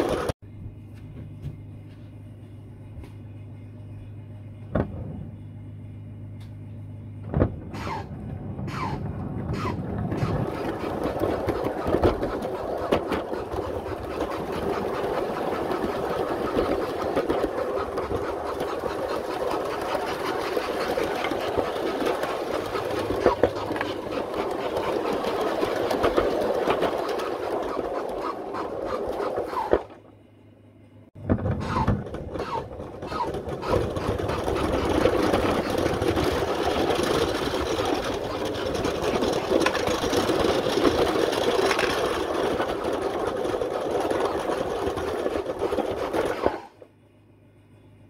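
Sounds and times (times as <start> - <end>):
model train clattering on track: 9.5 - 29.9, 31.6 - 46.7.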